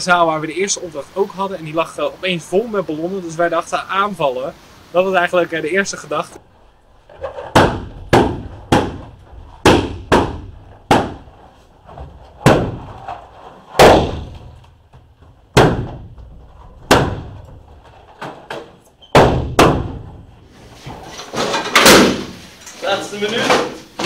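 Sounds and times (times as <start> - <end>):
balloons popping: 7.0 - 20.2.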